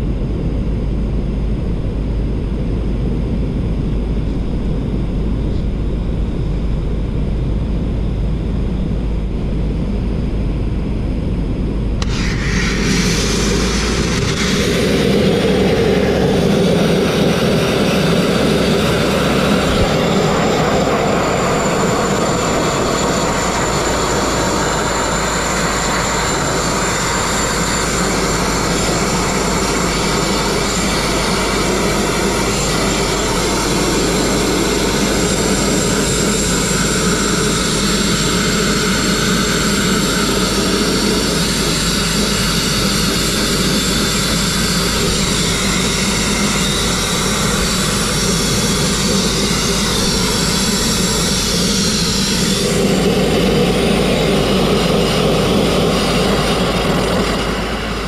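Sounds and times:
grit blasting hiss on metal: 0:12.0 - 0:15.2.

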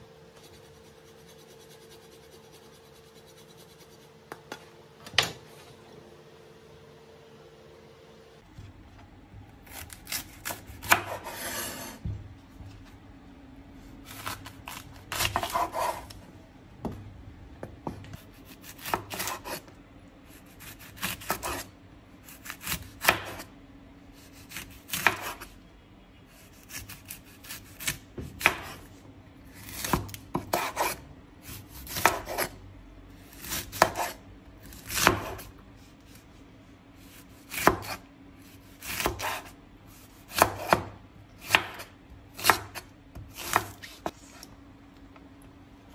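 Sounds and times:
knife chopping on cutting board: 0:09.6 - 0:12.2, 0:14.1 - 0:16.2, 0:17.6 - 0:19.7, 0:20.6 - 0:21.7, 0:22.4 - 0:23.5, 0:24.4 - 0:25.5, 0:26.6 - 0:28.9, 0:29.6 - 0:32.5, 0:33.4 - 0:35.5, 0:37.2 - 0:38.0, 0:38.7 - 0:44.2.

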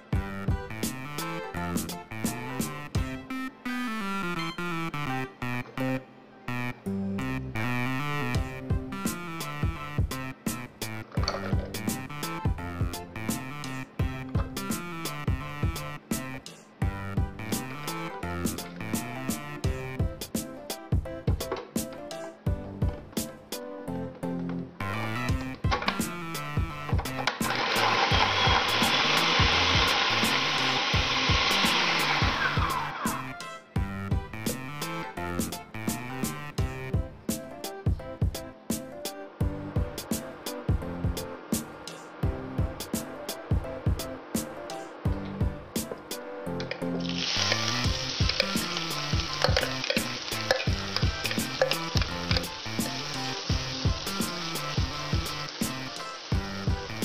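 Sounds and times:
background music with steady beat: 0:00.0 - 0:57.0
food processor chopping: 0:27.2 - 0:33.0
food sizzling in hot oil: 0:27.4 - 0:33.2, 0:47.0 - 0:57.0.

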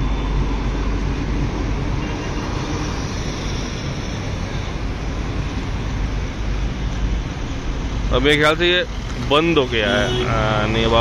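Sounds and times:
road traffic drone: 0:00.0 - 0:11.0.

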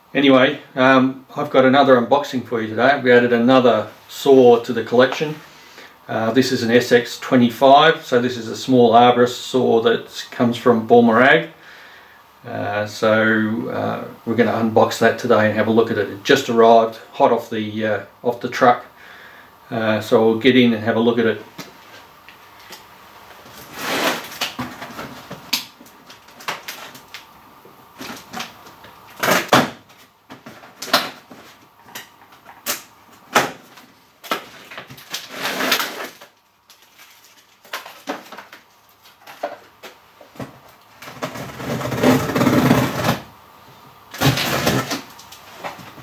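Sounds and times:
cardboard and packaging rustling: 0:21.5 - 0:27.3, 0:27.9 - 0:43.3.

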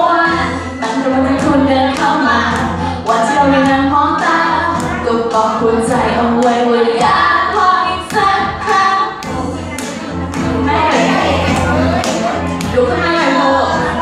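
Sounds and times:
backing track with steady beat: 0:00.0 - 0:14.0
woman singing into a microphone: 0:00.0 - 0:14.0.

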